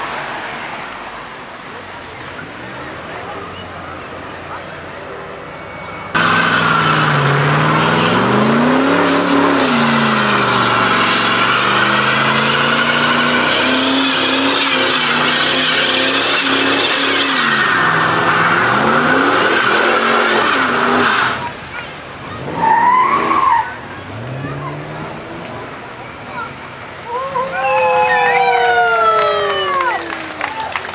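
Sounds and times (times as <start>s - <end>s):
tyres squealing: 5.5s - 21.6s
car engine revving: 6.1s - 25.8s.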